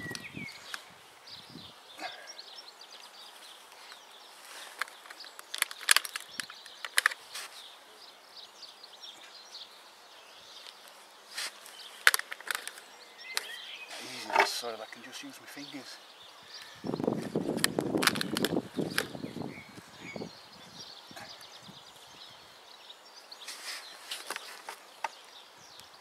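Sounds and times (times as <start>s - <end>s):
distant birdsong: 0.0s - 26.0s
fingers scraping gritty soil: 10.7s - 12.8s, 13.4s - 14.6s, 23.4s - 24.9s.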